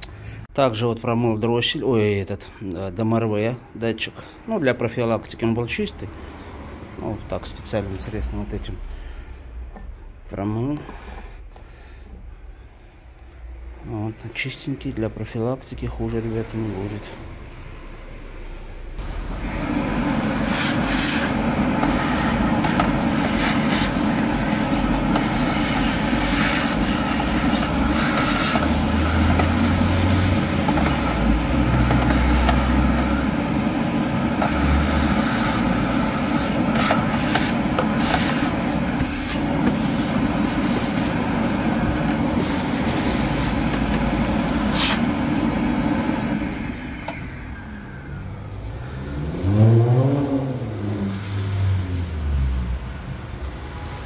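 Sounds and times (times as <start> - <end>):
motor spinning up whine: 19.0 - 51.1
vacuum cleaner running: 19.0 - 52.4.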